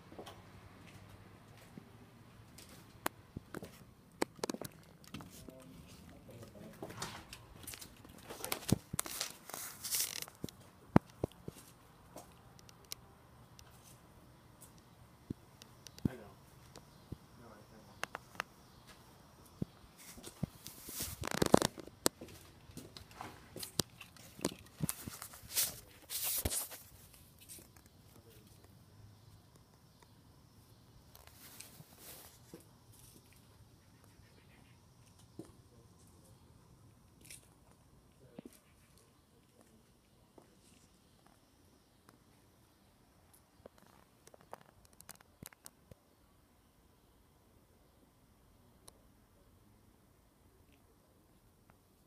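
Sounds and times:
rustling: 2.6s - 11.9s, 19.6s - 28.7s.

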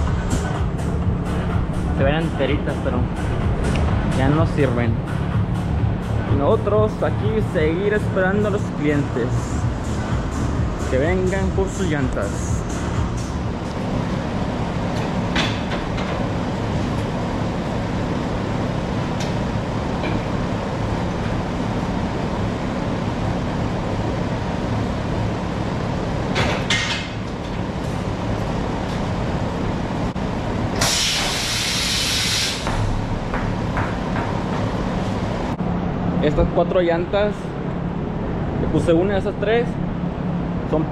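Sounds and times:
tire changer machine hum: 0.0s - 36.5s
compressed air hiss: 30.8s - 32.9s.

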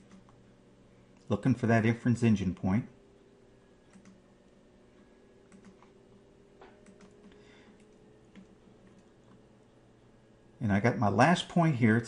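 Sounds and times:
low steady hum: 0.0s - 12.0s
faint computer clicks: 3.8s - 4.6s, 5.5s - 6.0s, 6.6s - 9.4s.

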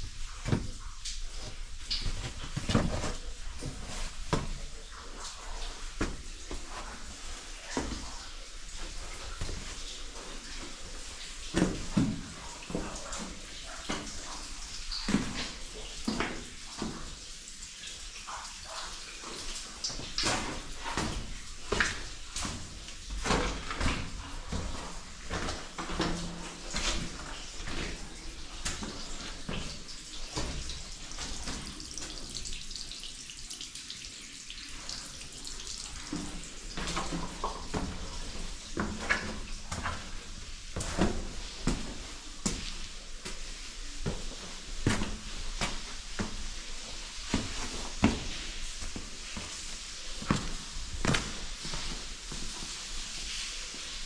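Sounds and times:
water splashing underfoot: 0.0s - 33.7s, 34.5s - 54.0s.

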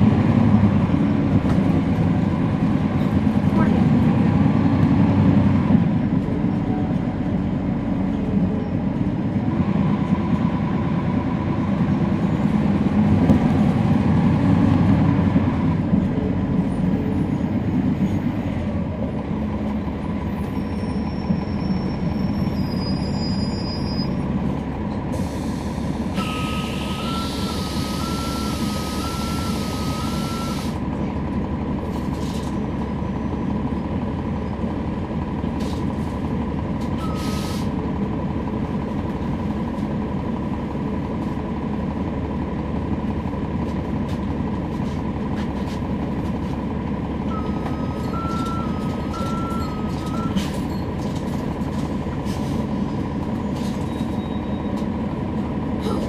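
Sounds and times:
bus drivetrain drone: 0.0s - 56.0s.

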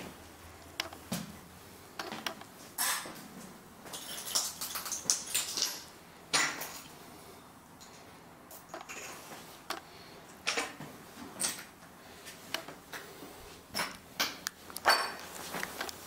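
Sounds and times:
shards clinking and scraping: 3.8s - 6.9s, 7.8s - 9.3s.

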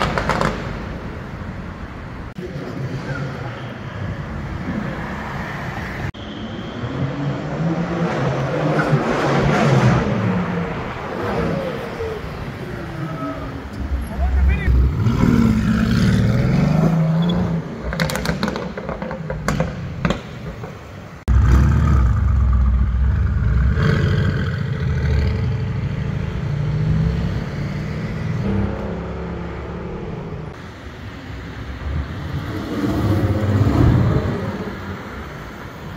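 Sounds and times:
exhaust cracks and pops: 0.0s - 0.8s, 17.9s - 20.3s.

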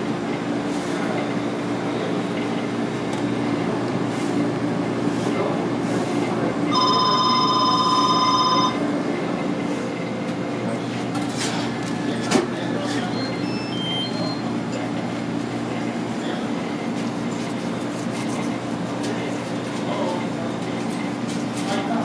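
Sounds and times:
electronic ringing tone: 6.7s - 8.8s.

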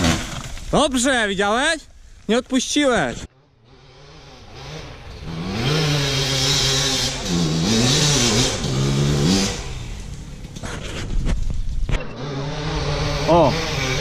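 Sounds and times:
dirt bike engine revving: 0.0s - 0.6s, 3.2s - 11.2s, 11.8s - 14.0s.

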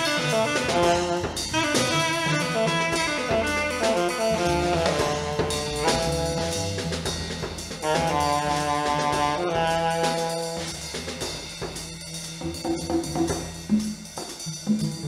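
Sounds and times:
alto saxophone long notes: 0.0s - 7.2s, 7.8s - 10.8s
drum hits: 0.0s - 15.0s
upright bass: 0.0s - 15.0s.

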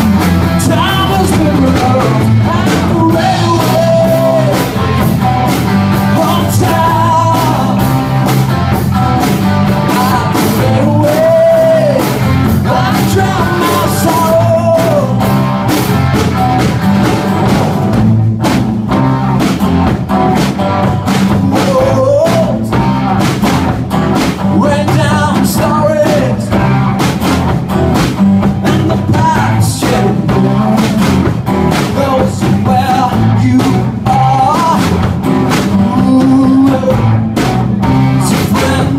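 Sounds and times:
man singing: 0.0s - 8.4s, 9.7s - 15.4s, 21.2s - 22.9s, 24.4s - 26.9s, 28.4s - 37.2s, 38.1s - 38.9s
drum kit beat: 0.0s - 38.9s
electric guitars: 0.0s - 38.9s.

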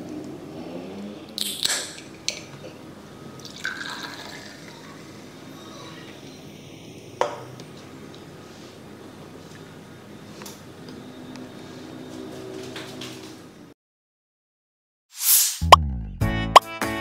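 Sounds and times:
soda water pouring and fizzing: 3.4s - 4.9s.

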